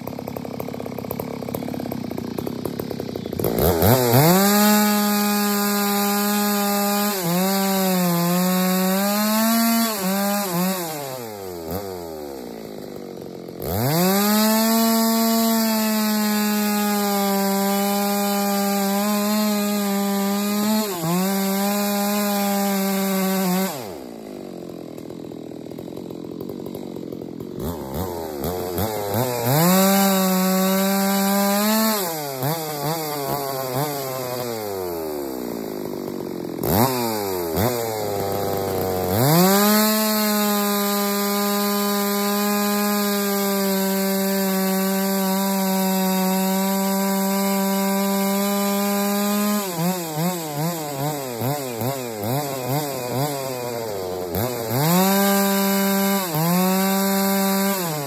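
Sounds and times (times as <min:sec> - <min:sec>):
chainsaw revving: 0:00.0 - 0:58.0.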